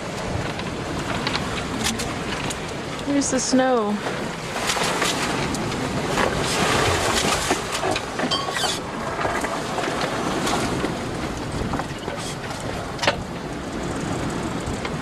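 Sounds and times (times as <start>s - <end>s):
rough sea rushing: 0.0s - 15.0s
wind buffeting microphone: 0.0s - 15.0s
brief squeak: 8.3s - 8.8s.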